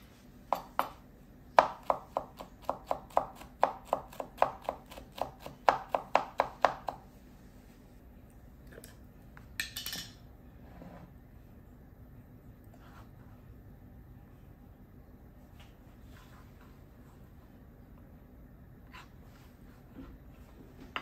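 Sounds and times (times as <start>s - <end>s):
knife chopping on wooden board: 1.6s - 7.0s
knife scrape: 18.9s - 19.6s.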